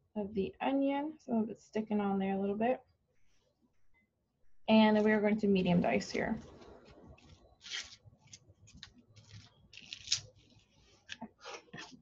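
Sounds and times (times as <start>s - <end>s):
onion skin crackling: 6.4s - 12.0s.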